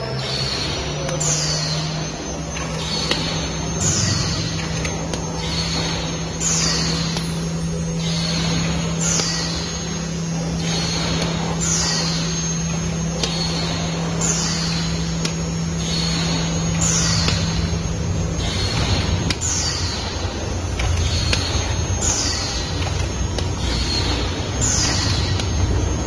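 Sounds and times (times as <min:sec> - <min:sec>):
machine humming: 0:00.0 - 0:26.0
sharp machine clicks: 0:00.0 - 0:26.0.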